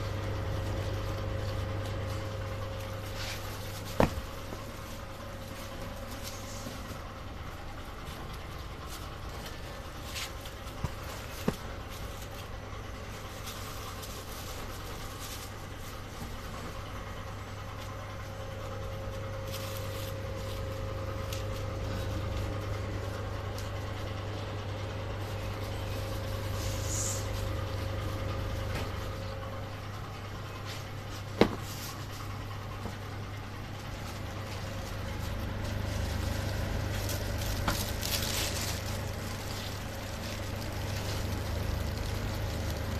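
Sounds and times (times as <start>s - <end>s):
machine hum: 0.0s - 42.9s
high steady whine: 17.4s - 31.6s.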